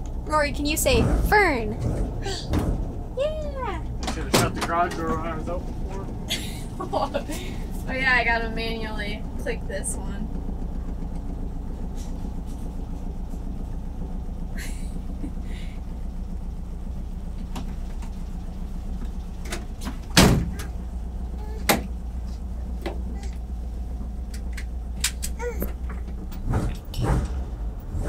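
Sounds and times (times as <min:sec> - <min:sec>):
bus engine idling: 0:00.0 - 0:28.0
door slamming: 0:19.5 - 0:20.7.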